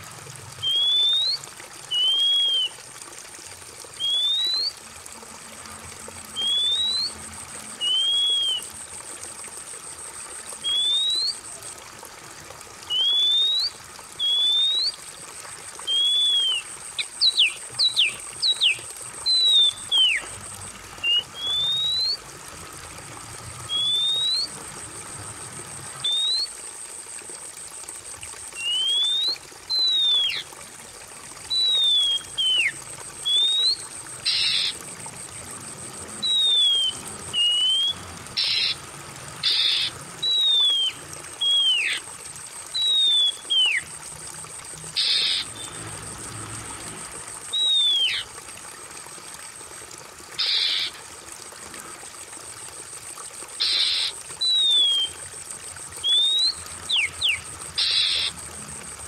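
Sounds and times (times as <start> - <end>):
water trickling: 0.0 - 59.0
bird whistling: 0.6 - 2.8, 4.0 - 4.7, 6.4 - 7.2, 7.8 - 8.7, 10.6 - 11.4, 12.9 - 14.9, 15.9 - 20.2, 21.0 - 22.2, 23.7 - 24.5, 26.0 - 26.5, 28.6 - 30.4, 31.5 - 34.8, 36.2 - 38.8, 39.4 - 42.0, 42.8 - 43.8, 47.5 - 48.3, 50.4 - 50.9, 53.6 - 55.2, 56.0 - 58.3.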